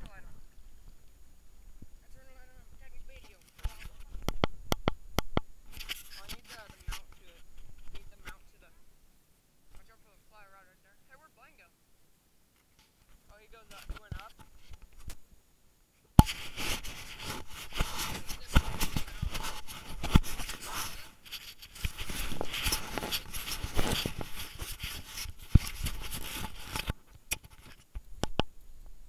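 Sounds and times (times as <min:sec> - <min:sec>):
rubbing and scraping on camera: 0:01.6 - 0:04.9, 0:05.7 - 0:08.6, 0:12.6 - 0:15.2, 0:16.2 - 0:28.4.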